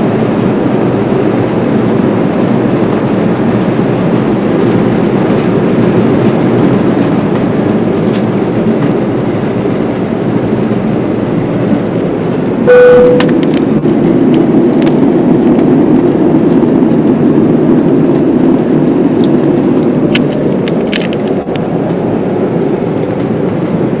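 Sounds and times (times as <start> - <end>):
jet engines droning in cabin: 0.0 - 24.0
brief single tone: 12.7 - 13.4.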